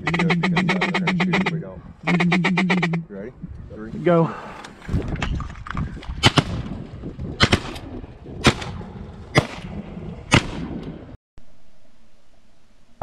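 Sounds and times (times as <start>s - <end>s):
shotgun shots: 6.2s - 6.8s, 7.4s - 10.9s.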